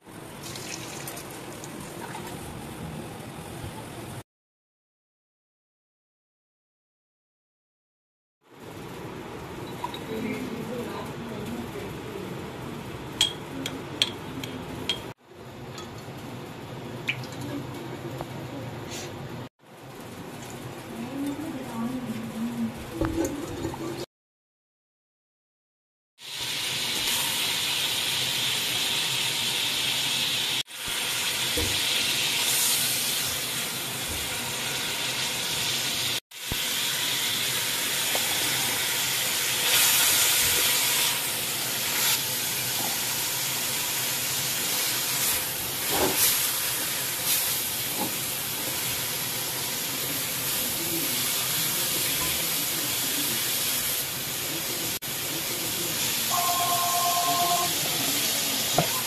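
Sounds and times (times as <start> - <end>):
food sizzling in hot oil: 0.2 - 2.7, 26.2 - 59.0.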